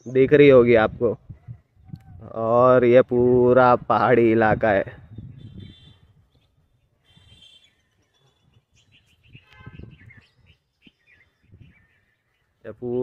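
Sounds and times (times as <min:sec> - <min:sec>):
faint bird chirping: 0:04.7 - 0:13.0.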